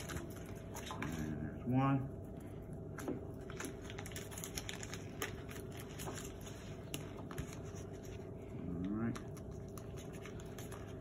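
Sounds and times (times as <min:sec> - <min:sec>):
paper wrapper rustling: 0:03.4 - 0:08.3.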